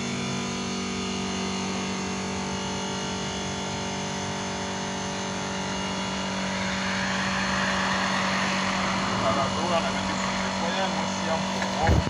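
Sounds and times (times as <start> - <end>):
engine humming: 1.6 - 12.0
rushing noise: 3.4 - 12.0.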